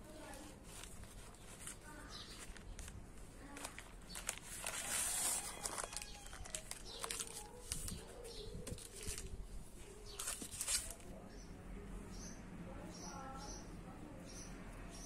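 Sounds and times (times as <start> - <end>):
baking paper rustling and crinkling: 0.0 - 11.2.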